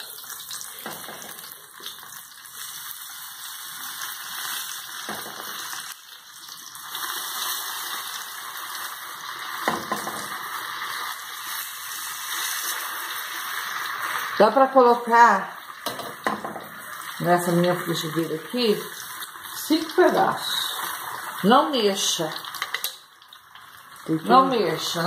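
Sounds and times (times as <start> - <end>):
food sizzling in oil: 0.0 - 25.0
fork tapping a pan: 15.8 - 16.6.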